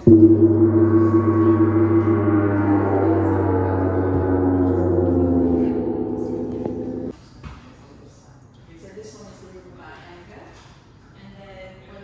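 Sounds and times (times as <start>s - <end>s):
gong ringing: 0.0s - 7.1s.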